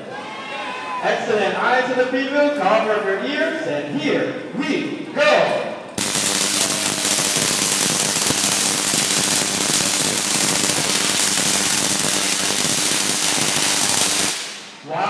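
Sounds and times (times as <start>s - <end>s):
tesla coil crackling buzz: 6.0s - 14.8s.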